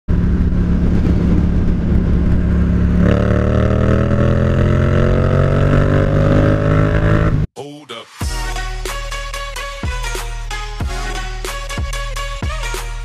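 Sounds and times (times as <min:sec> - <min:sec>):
motorcycle engine accelerating: 0:00.1 - 0:07.5.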